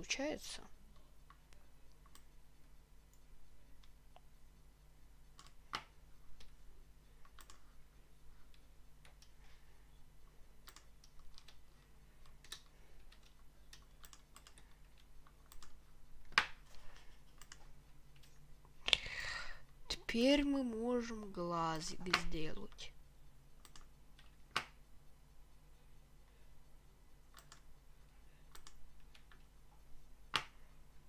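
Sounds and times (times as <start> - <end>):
low steady hum: 0.0 - 31.0
mouse and keyboard clicks: 5.3 - 6.6, 7.2 - 7.6, 10.6 - 11.6, 12.2 - 16.6, 17.3 - 18.3, 23.6 - 24.8, 27.3 - 27.7, 28.5 - 29.4.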